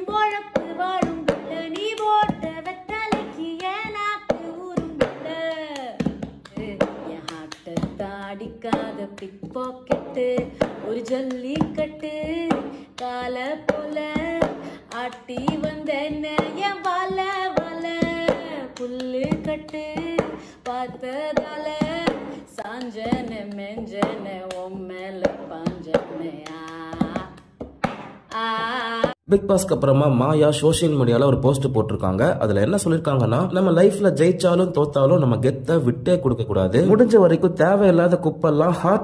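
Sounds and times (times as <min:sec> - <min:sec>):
woman singing: 0:00.0 - 0:27.6, 0:28.2 - 0:29.2
hand claps and taps: 0:00.1 - 0:29.2.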